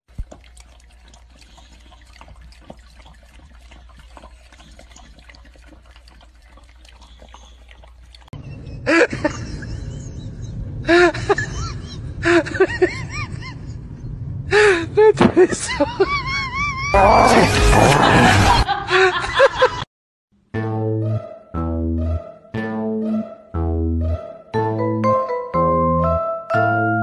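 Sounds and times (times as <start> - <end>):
puppy lapping from metal bowl: 0.1 - 8.4.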